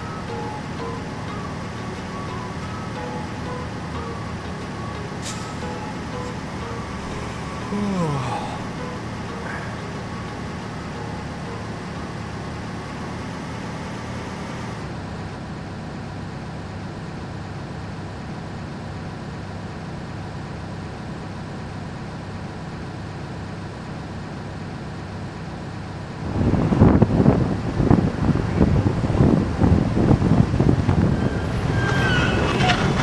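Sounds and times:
road noise hiss: 0.0 - 19.6
truck engine drone: 0.0 - 33.0.

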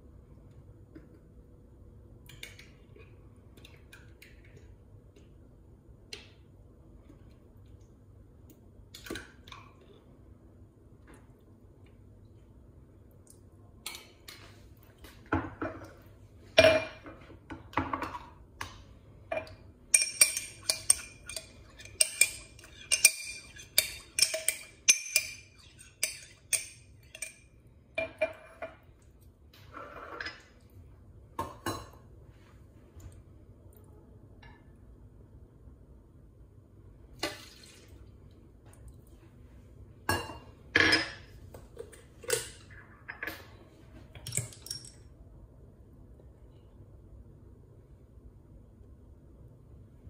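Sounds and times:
kitchenware clinking and knocking: 16.6 - 18.3, 40.1 - 41.3.

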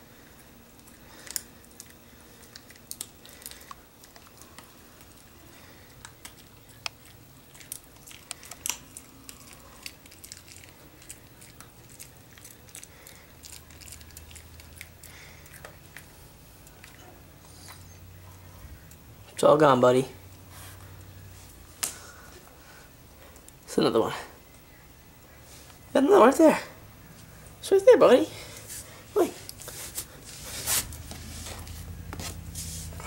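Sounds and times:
dog chewing a crunchy treat: 6.0 - 17.9.

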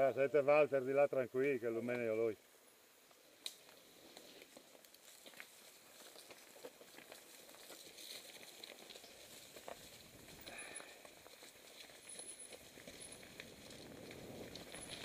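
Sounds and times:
bike tyres rolling over leaves: 3.3 - 15.0.

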